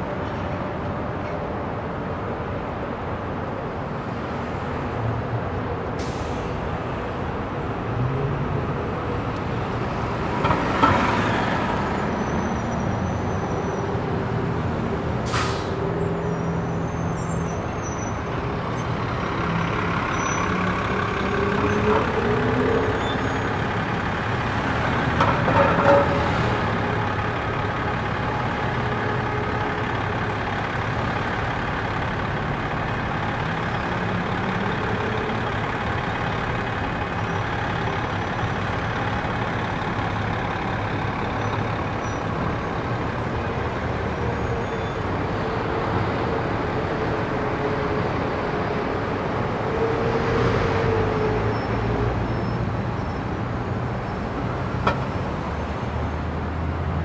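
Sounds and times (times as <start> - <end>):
heavy vehicle engines: 0.0 - 57.0
passing road traffic: 0.0 - 57.0.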